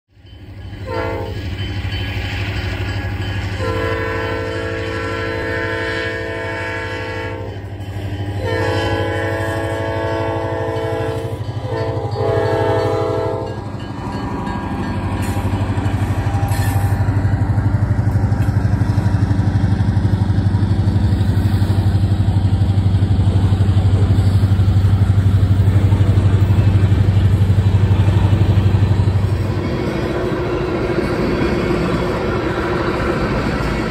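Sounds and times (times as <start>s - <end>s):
locomotive engine rumble: 0.2s - 33.9s
locomotive horn blasts: 0.8s - 1.5s, 3.5s - 13.6s
freight cars rolling by: 13.4s - 33.9s.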